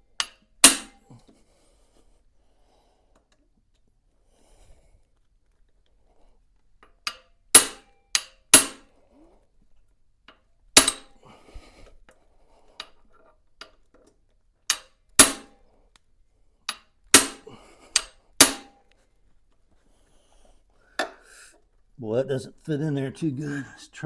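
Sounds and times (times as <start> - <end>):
hammer striking metal wrench: 0.2 - 1.0, 6.8 - 8.8, 10.3 - 11.2, 14.7 - 15.6, 16.7 - 18.8.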